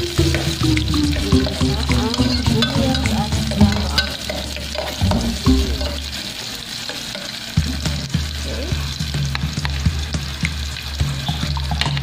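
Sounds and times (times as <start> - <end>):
onions sizzling in a pot: 0.0 - 12.0
metal spoon knocking a pot: 1.9 - 4.2.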